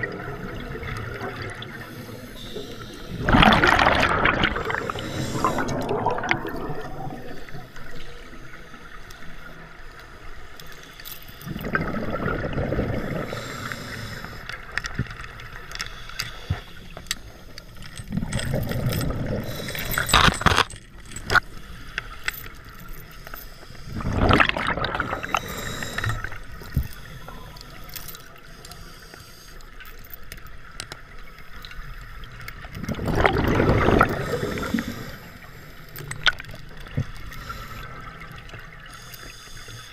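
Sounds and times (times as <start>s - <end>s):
bubbles gurgling from regulator: 0.0s - 7.6s, 11.5s - 14.1s, 18.1s - 20.2s, 24.0s - 27.6s, 32.6s - 35.2s
quiet water noise: 0.0s - 39.9s.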